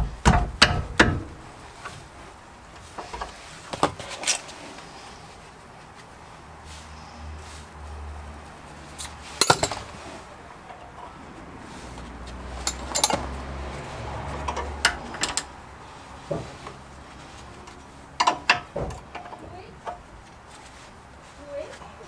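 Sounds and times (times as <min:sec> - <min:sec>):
metal tools clanking on metal: 0:09.0 - 0:11.2, 0:12.6 - 0:13.5, 0:14.4 - 0:15.5.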